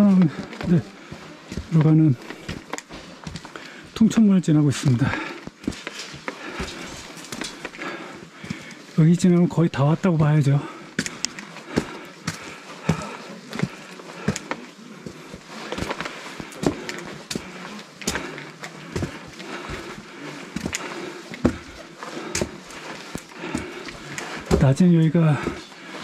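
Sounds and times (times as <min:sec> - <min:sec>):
footsteps on rocky trail: 0:00.0 - 0:26.0.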